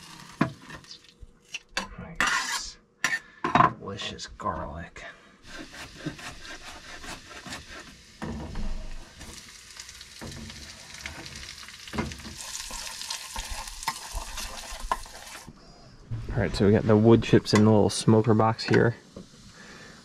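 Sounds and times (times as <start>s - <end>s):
garlic sizzling in butter: 0.0s - 1.1s, 5.4s - 15.5s
spoon stirring and scraping pan: 2.2s - 3.3s, 5.4s - 8.4s, 10.2s - 15.5s.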